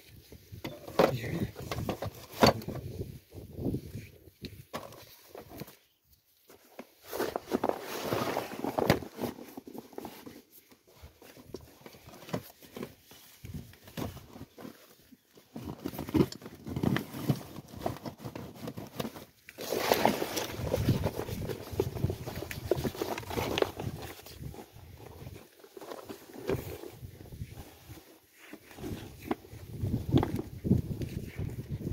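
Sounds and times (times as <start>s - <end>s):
scuffs and knocks on dirt: 6.5s - 31.9s.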